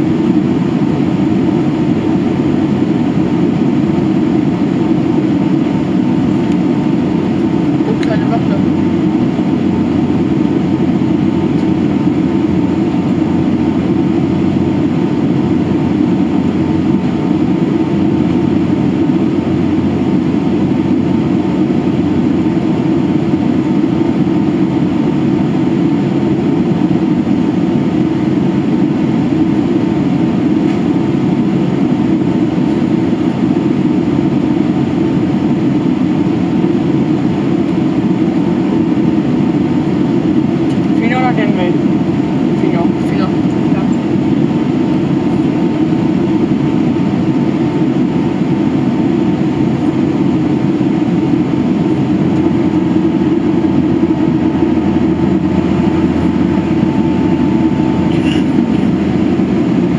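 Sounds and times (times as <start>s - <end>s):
airplane cabin drone: 0.0s - 59.9s.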